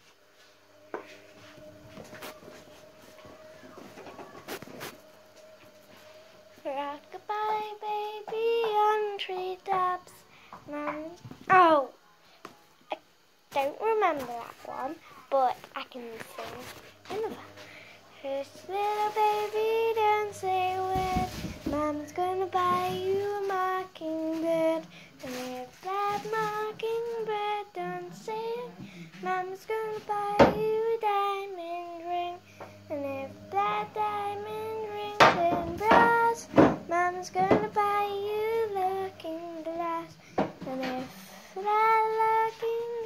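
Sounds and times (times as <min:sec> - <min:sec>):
child singing: 0:06.6 - 0:12.0, 0:13.5 - 0:17.6, 0:18.2 - 0:43.0.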